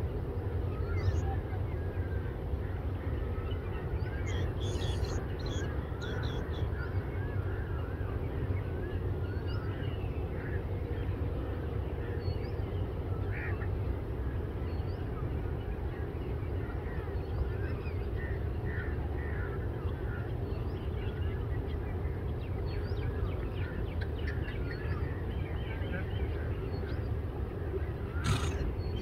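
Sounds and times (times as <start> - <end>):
birds chirping: 4.1 - 6.7, 28.0 - 29.0.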